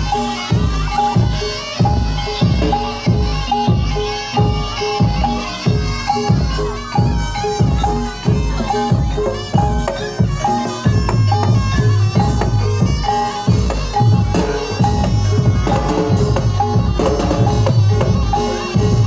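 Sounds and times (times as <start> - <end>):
drums beating: 0.0 - 19.0
pitched metal percussion: 0.0 - 19.0
reedy wind instrument melody: 0.0 - 19.0.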